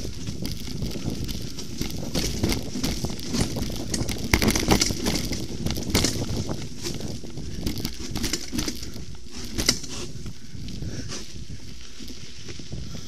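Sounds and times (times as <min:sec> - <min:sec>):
bike knocking over bumps: 0:00.0 - 0:10.4
bike tyres rumbling on dirt: 0:00.0 - 0:13.0.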